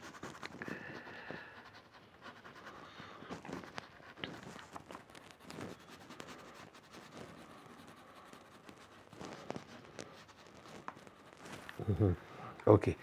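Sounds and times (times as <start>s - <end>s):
crayon scratching on paper: 0.0s - 13.0s.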